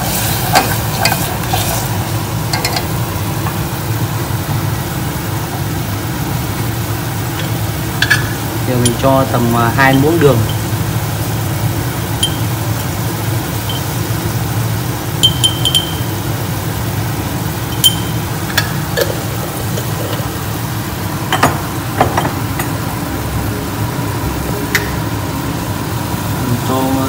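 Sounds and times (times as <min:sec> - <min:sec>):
spoon clinking against pan: 0:08.0 - 0:09.0, 0:12.2 - 0:12.5, 0:15.2 - 0:16.1, 0:17.7 - 0:18.8.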